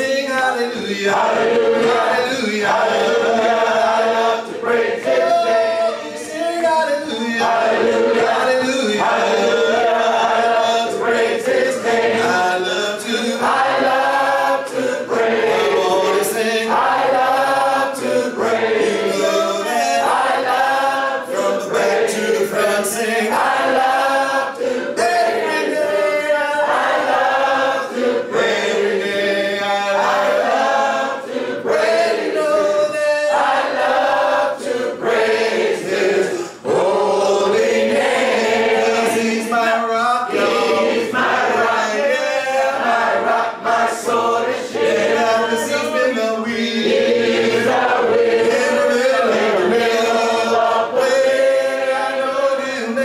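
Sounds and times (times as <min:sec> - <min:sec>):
congregation singing a cappella: 0:00.0 - 0:53.0.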